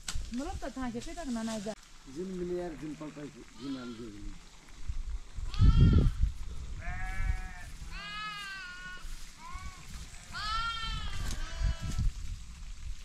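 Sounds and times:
sheep bleating: 3.5s - 4.2s, 5.5s - 6.1s, 6.8s - 11.9s.

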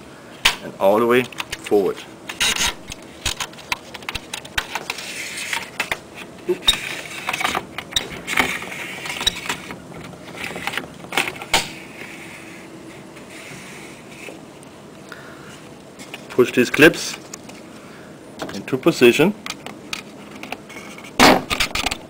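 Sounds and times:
scratchy rubbing: 4.9s - 5.8s.

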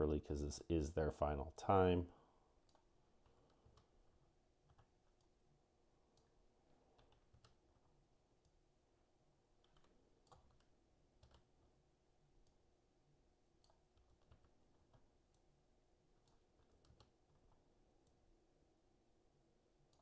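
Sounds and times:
mouse and keyboard clicks: 6.9s - 7.6s, 9.6s - 11.5s, 16.2s - 18.2s.

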